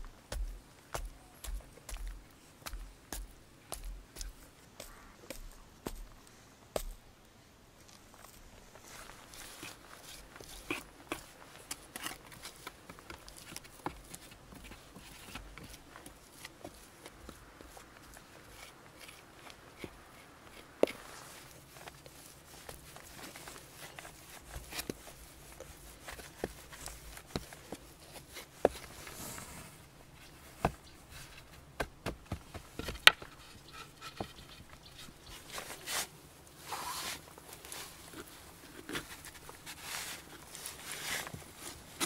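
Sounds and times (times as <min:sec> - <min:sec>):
hands working wet mud: 0:09.0 - 0:29.2.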